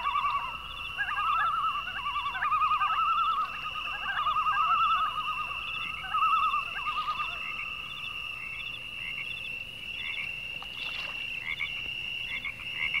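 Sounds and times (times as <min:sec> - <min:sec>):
frogs chirping: 0:00.0 - 0:13.0.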